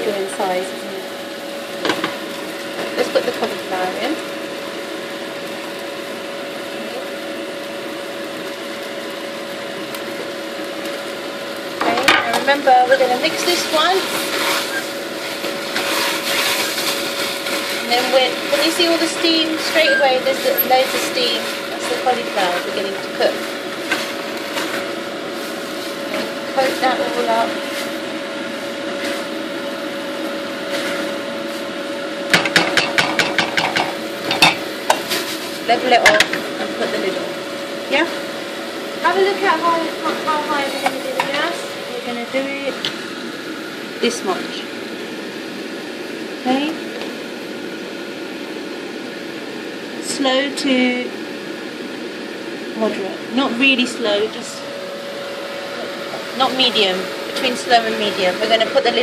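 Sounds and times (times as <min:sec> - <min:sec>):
sauce sizzling in a pan: 0:00.0 - 0:50.0
constant hum: 0:00.0 - 0:59.0
spatula stirring in a pot: 0:14.0 - 0:18.2.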